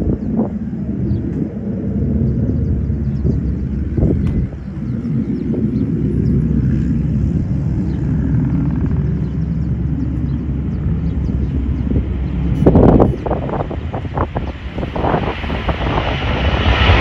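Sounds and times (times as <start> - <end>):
jet engines rumbling at takeoff: 0.0 - 17.0.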